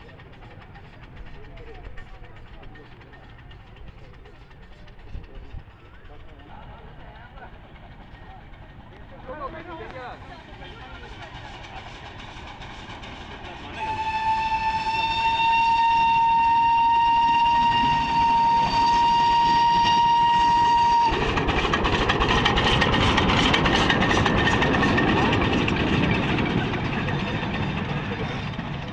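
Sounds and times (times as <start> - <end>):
train wheels clattering on rails: 0.0 - 28.9
toy train horn: 13.7 - 21.2.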